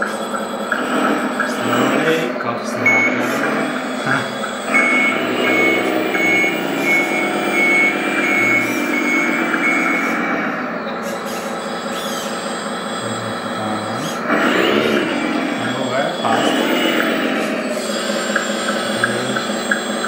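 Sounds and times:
diesel engine sound: 0.0 - 20.0
reversing alarm beeps: 0.0 - 20.0.

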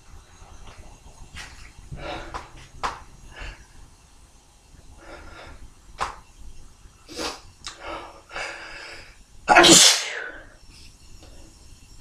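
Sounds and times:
man sneezing: 9.5 - 10.4
breathy bursts before sneeze: 9.5 - 10.5.

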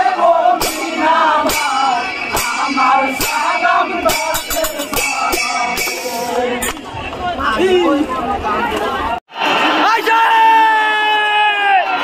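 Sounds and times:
men singing: 0.0 - 7.0
small brass hand cymbals: 0.6 - 6.8.

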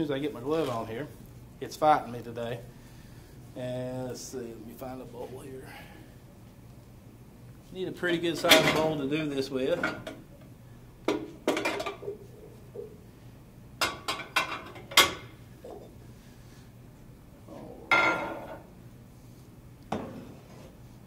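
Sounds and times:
dishes clattering and clinking: 8.4 - 9.0, 9.8 - 10.3, 11.1 - 13.0, 13.8 - 16.0, 17.9 - 18.7.

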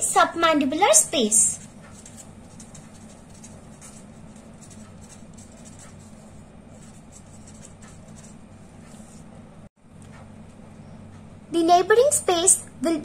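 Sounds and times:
steady low hum: 0.0 - 13.0
marker pen scratching on paper: 1.4 - 9.4.

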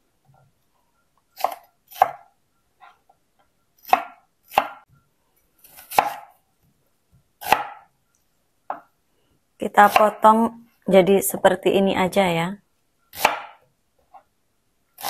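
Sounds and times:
knife chopping on wooden board: 1.4 - 2.3, 3.8 - 4.8, 5.7 - 6.3, 7.4 - 7.9, 13.1 - 13.6.

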